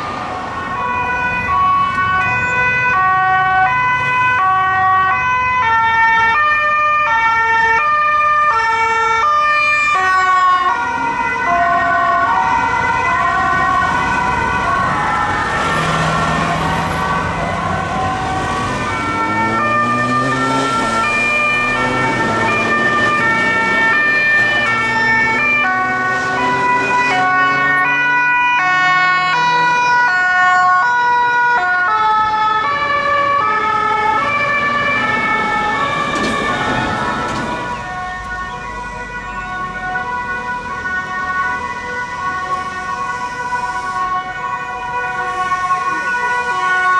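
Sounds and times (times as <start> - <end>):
road noise: 0.0 - 46.9
two-tone sirens: 0.0 - 46.9
vehicle engines rising in pitch: 10.5 - 46.9.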